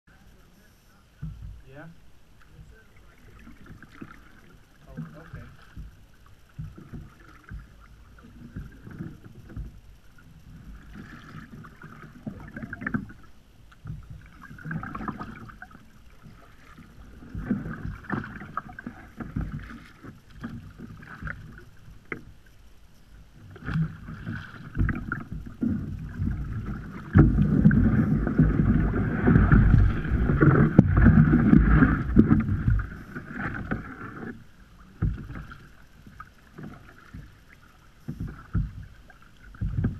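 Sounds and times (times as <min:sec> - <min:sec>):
paddle dipping and splashing: 0:01.2 - 0:39.9
low rushing: 0:26.2 - 0:33.7.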